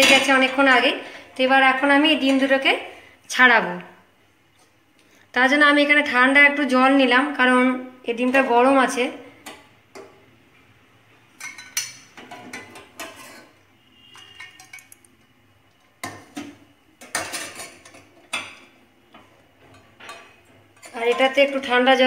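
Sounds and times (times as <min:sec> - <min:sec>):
spoon clinking against steel pans: 0:11.3 - 0:15.3, 0:16.0 - 0:21.7.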